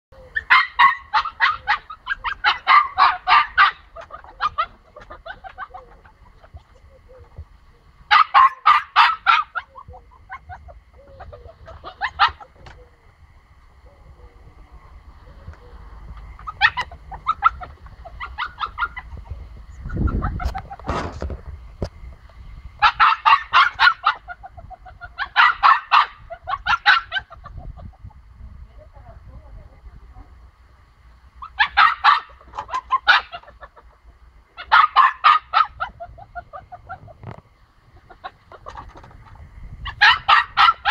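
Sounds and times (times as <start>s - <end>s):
puppy yapping: 0.4s - 6.5s, 8.1s - 12.8s, 16.4s - 19.2s, 22.8s - 27.4s, 31.4s - 33.8s, 34.6s - 37.2s, 39.8s - 40.9s.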